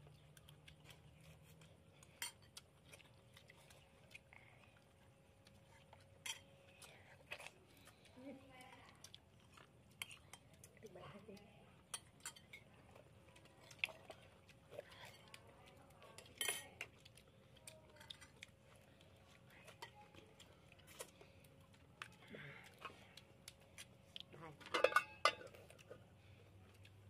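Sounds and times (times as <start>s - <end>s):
spoons clinking on ceramic plates: 11.9s - 12.7s, 16.3s - 16.7s, 24.7s - 25.5s.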